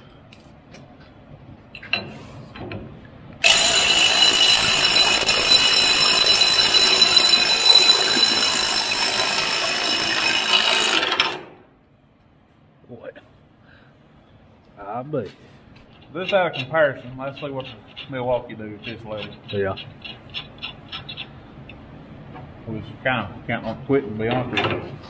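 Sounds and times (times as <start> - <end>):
impact wrench hammering: 3.4 - 11.6.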